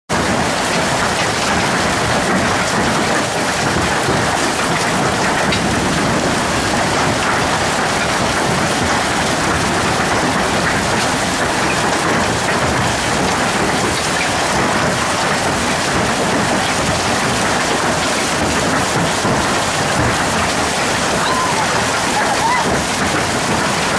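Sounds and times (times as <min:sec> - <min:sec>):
hail and heavy rain pelting: 0:00.1 - 0:23.9.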